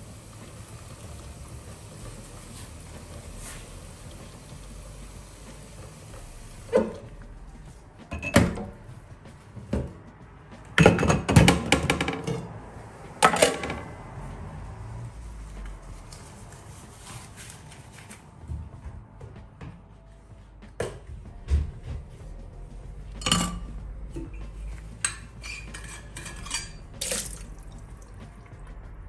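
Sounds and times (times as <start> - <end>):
dishes clanking in sink: 8.1 - 8.8, 10.8 - 12.5, 23.2 - 24.3, 25.0 - 27.5
tap water running into sink: 27.0 - 28.3.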